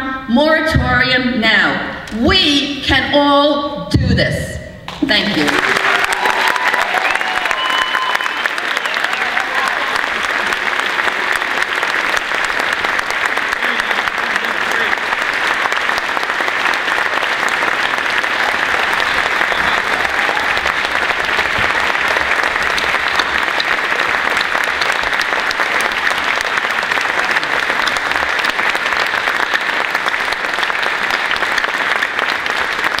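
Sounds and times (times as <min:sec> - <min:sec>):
crowd applauding in a hall: 0:04.9 - 0:33.0.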